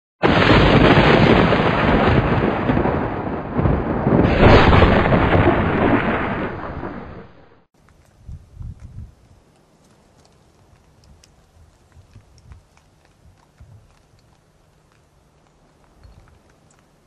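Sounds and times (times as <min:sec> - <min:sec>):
thunder-like crash with deep low end: 0:00.2 - 0:07.6.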